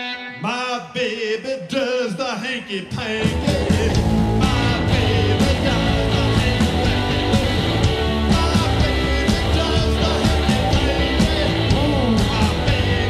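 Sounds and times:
rock band playing: 0:03.1 - 0:13.0.

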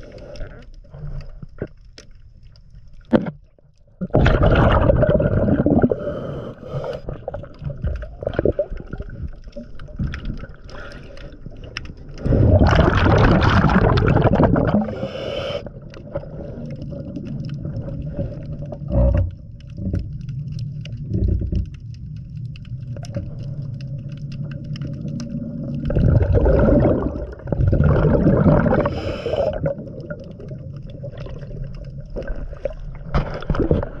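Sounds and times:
exhaled bubbles rushing: 0:04.0 - 0:10.6, 0:11.5 - 0:34.0
diver breathing through regulator: 0:05.6 - 0:07.4, 0:14.7 - 0:16.9, 0:28.6 - 0:29.8.

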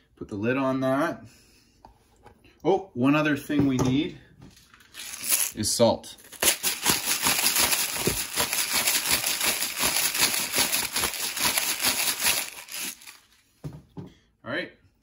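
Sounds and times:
salt crackling and rustling: 0:04.8 - 0:05.6, 0:06.2 - 0:13.5.

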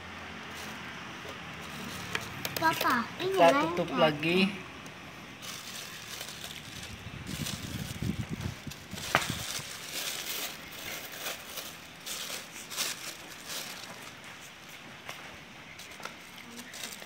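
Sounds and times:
plastic sheet crinkling: 0:05.4 - 0:14.8, 0:15.7 - 0:17.0.

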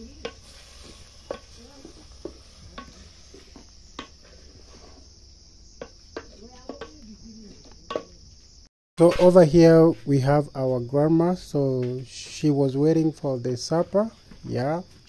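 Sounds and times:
crickets chirring: 0:00.0 - 0:15.0
wooden spoon scraping metal pot: 0:00.2 - 0:05.2.

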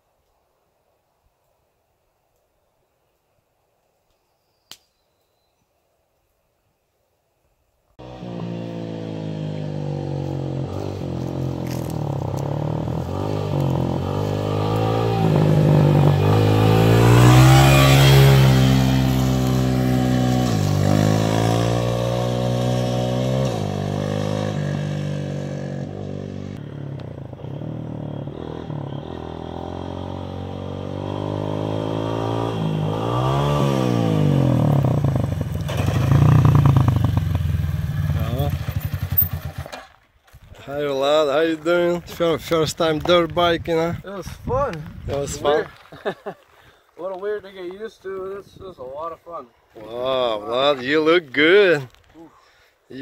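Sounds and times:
dirt bike engine passing by: 0:08.0 - 0:40.0.

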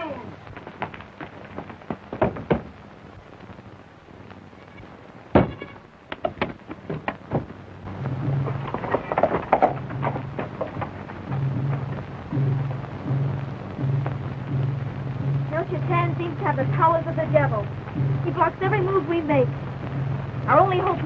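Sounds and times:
low hum: 0:00.0 - 0:21.0
knocks and thumps: 0:00.5 - 0:02.8, 0:05.3 - 0:15.4
clatter: 0:08.3 - 0:12.1.

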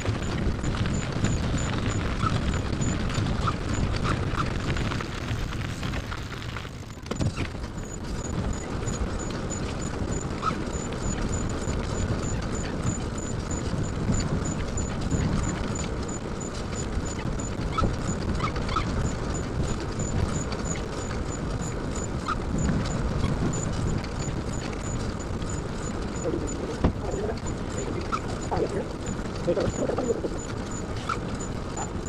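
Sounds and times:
trailer rattling: 0:00.0 - 0:32.0
trailer wheels rumbling on road: 0:00.0 - 0:32.0
short squeaks: 0:14.4 - 0:21.0, 0:21.9 - 0:32.0.

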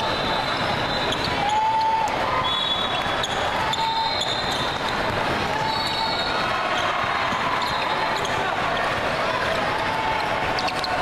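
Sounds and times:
sneakers squeaking on hardwood: 0:02.8 - 0:08.4.

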